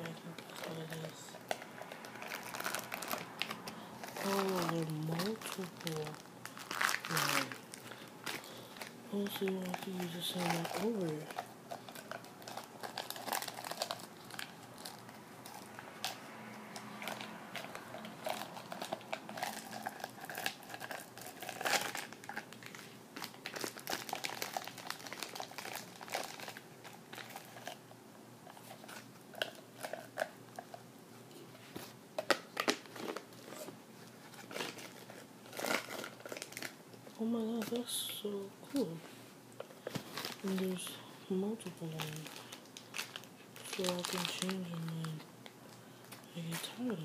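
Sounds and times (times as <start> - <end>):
plastic bottle crinkling and clicking: 31.8 - 37.8, 39.6 - 40.7.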